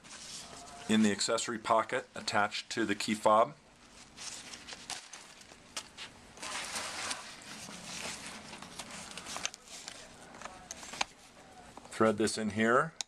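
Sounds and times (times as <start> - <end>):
backpack fabric rustling: 6.4 - 10.2.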